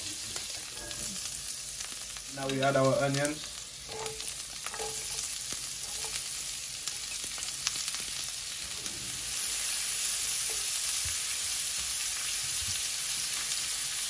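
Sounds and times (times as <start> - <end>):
onions sizzling in a skillet: 0.0 - 14.0
metal tongs clicking on pan: 3.9 - 6.2.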